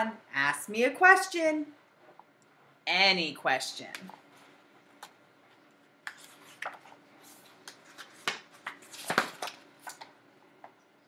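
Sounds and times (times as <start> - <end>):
book pages turning: 4.2 - 10.8.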